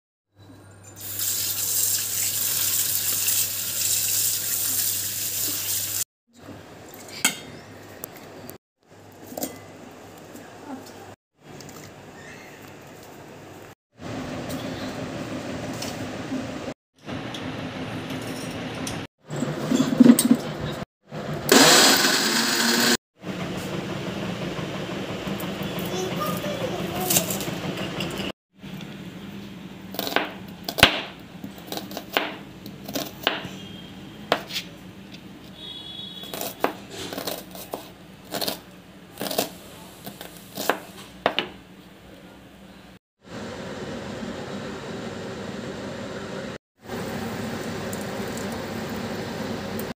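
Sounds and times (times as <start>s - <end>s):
mixer grinder running: 21.2s - 28.3s.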